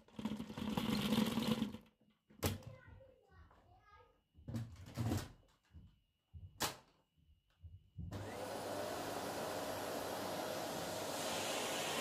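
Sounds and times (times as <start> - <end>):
vacuum cleaner motor running: 8.1 - 12.0.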